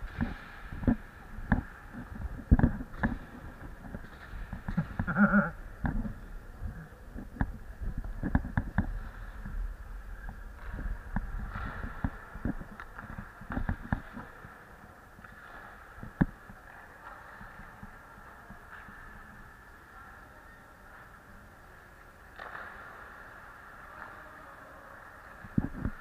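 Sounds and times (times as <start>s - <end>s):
hockey sticks clacking: 0.0s - 26.0s.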